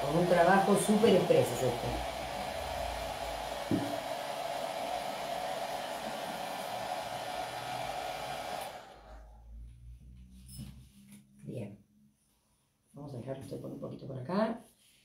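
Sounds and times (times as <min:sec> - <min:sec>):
hair dryer blowing: 0:00.0 - 0:09.4.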